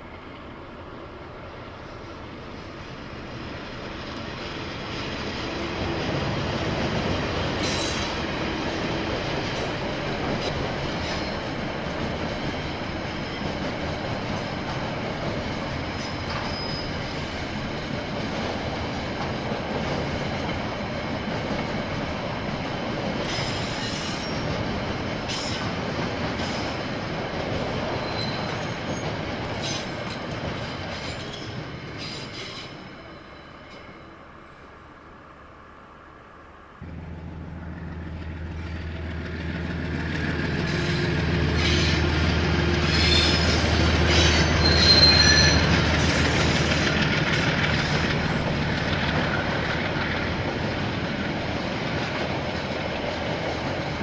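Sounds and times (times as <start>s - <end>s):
train wheels rumbling on rails: 0.0s - 35.7s, 36.4s - 54.0s
wheel squeal: 7.6s - 8.2s, 16.1s - 17.1s, 23.2s - 24.5s, 27.9s - 34.1s, 42.8s - 46.9s.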